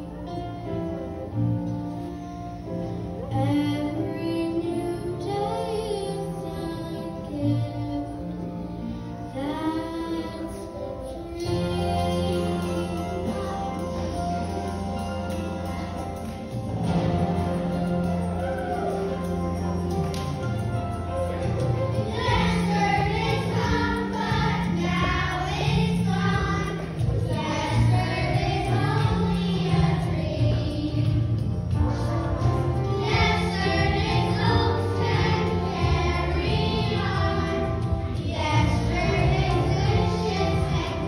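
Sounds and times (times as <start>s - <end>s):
children's choir singing: 2.9s - 41.0s
instrumental accompaniment: 9.0s - 41.0s.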